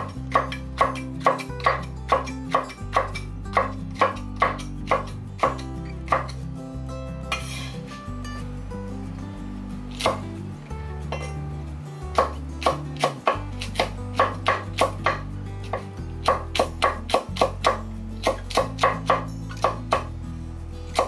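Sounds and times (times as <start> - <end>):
knife chopping on wooden board: 0.0 - 6.4, 12.2 - 20.1
background music with bass: 0.0 - 21.0.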